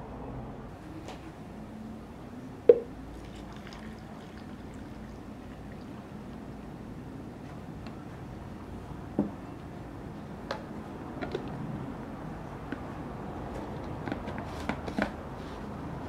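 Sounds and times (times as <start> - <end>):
steady low rumble: 0.0 - 0.7.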